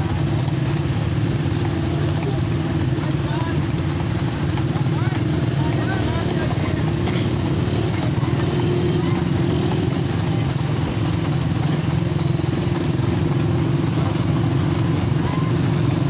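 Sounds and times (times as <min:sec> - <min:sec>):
horse hooves clopping on pavement: 0:00.0 - 0:16.0
motorcycle engines running: 0:00.0 - 0:16.0.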